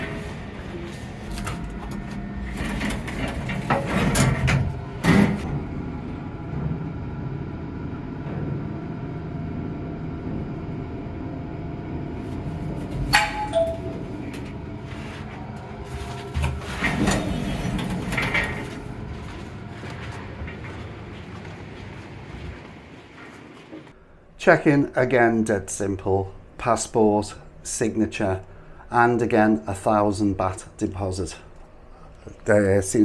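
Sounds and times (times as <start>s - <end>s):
lift humming: 0.0s - 24.2s
two-note lift chime: 13.1s - 14.1s.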